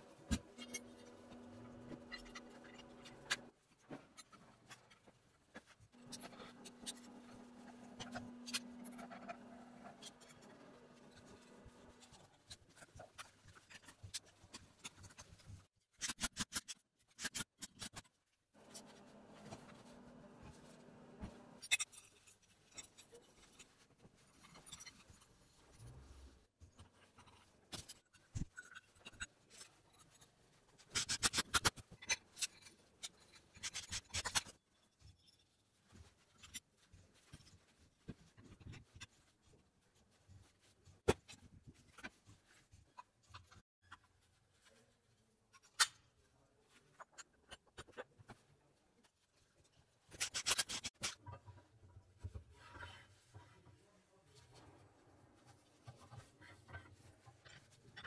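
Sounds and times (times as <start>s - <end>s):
metal parts clicking and scraping: 21.6s - 25.6s, 50.1s - 51.3s.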